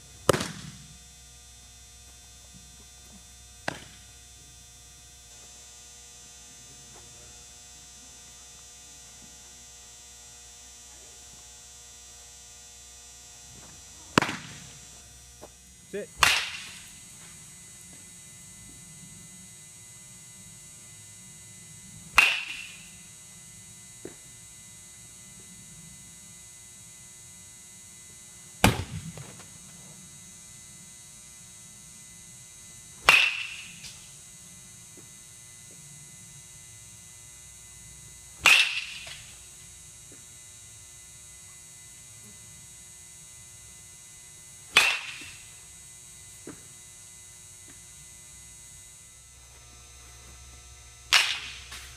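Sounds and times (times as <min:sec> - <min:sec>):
steady hum: 0:00.0 - 0:51.9
baseball bat cracking balls: 0:00.2 - 0:01.0, 0:02.8 - 0:04.2, 0:13.5 - 0:18.8, 0:22.1 - 0:23.0, 0:28.6 - 0:29.8, 0:33.0 - 0:34.2, 0:38.4 - 0:39.5, 0:44.7 - 0:45.6, 0:51.1 - 0:51.9.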